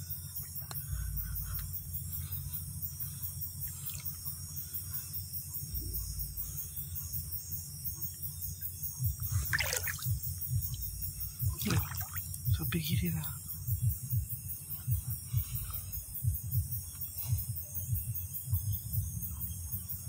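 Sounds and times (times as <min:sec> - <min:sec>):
insects chirping: 0:00.0 - 0:20.0
stream trickling over gravel: 0:09.4 - 0:10.1, 0:11.5 - 0:12.6
water splash: 0:09.4 - 0:10.2, 0:11.5 - 0:12.3.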